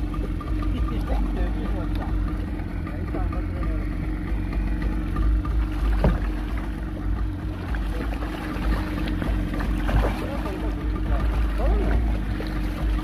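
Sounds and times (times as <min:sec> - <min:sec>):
boat engine idling: 0:00.0 - 0:13.0
fish splashing at surface: 0:05.6 - 0:13.0.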